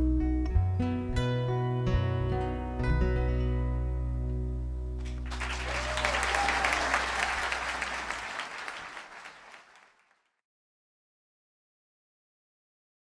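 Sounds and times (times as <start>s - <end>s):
audience applause: 5.0s - 10.3s.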